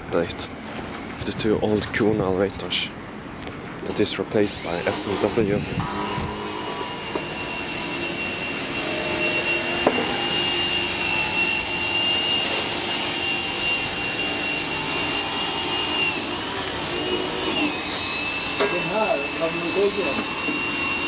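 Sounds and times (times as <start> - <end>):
electric motor whine: 4.6 - 21.0.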